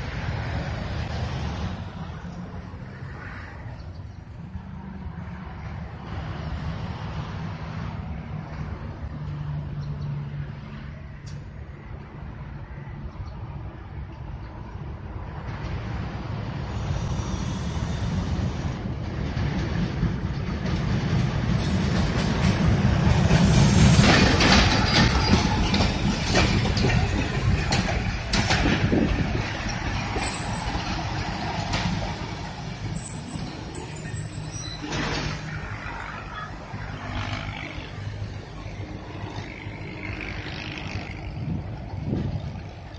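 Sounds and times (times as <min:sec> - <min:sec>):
diesel locomotive rumble: 0:00.0 - 0:42.9
wheels clattering over rail joints: 0:18.8 - 0:42.9.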